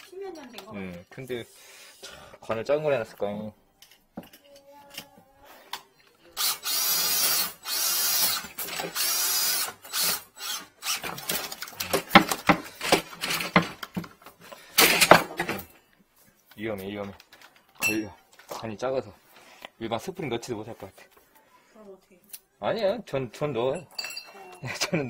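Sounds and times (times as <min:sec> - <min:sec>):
cordless drill spinning drain cable: 0:06.4 - 0:11.9
clattering and knocking: 0:11.1 - 0:15.7.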